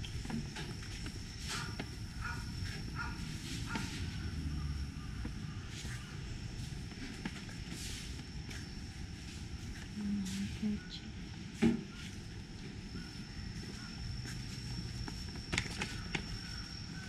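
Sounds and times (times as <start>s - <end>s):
footsteps on tiled floor: 0.0s - 10.6s, 11.9s - 16.7s.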